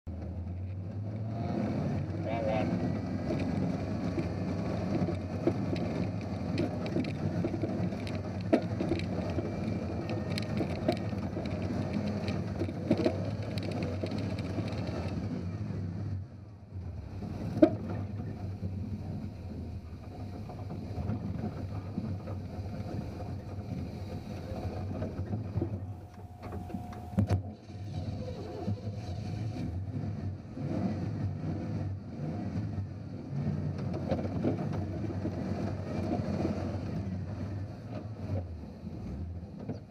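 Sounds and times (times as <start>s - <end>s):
engine running under load: 0.1s - 39.9s
knocks and clunks over rock: 3.1s - 15.3s.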